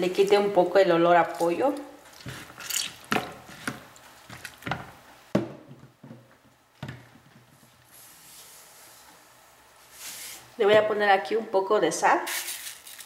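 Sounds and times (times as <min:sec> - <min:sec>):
hands squishing raw chicken: 0:01.4 - 0:04.6.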